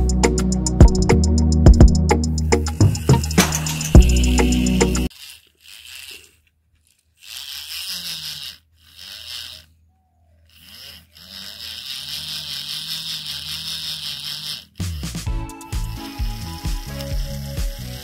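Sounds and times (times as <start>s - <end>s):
music: 0.0s - 5.1s, 15.1s - 18.0s
small electric motor whirring: 0.0s - 18.0s.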